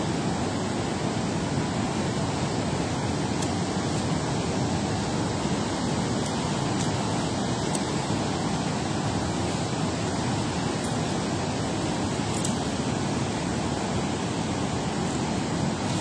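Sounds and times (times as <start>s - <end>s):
water rushing from spillway: 0.0s - 16.0s.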